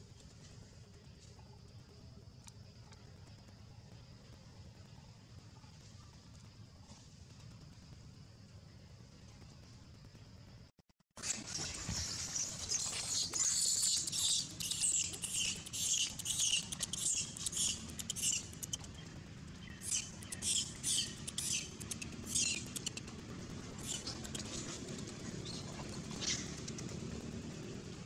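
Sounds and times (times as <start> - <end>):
baby monkey squeaking: 13.0 - 18.9, 19.8 - 23.0, 23.8 - 24.6.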